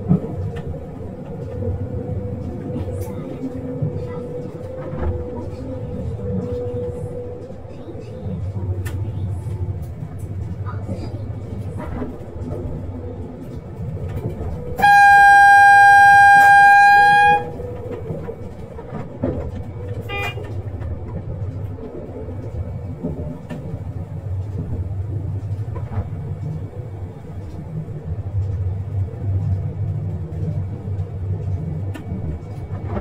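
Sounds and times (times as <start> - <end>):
low rumble of moving train: 0.0 - 33.0
train horn: 14.6 - 18.2, 20.0 - 20.6.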